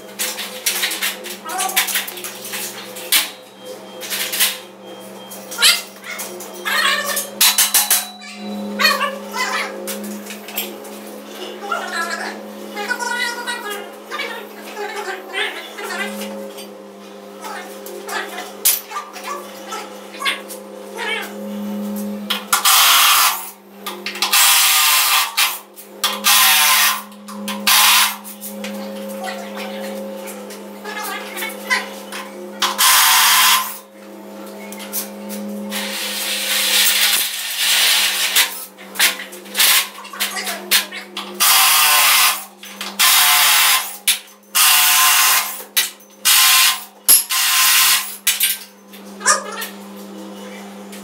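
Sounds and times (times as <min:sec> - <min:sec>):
steady low hum: 0:00.0 - 0:43.0
power tool running: 0:06.0 - 0:50.9
low hum: 0:26.0 - 0:32.7.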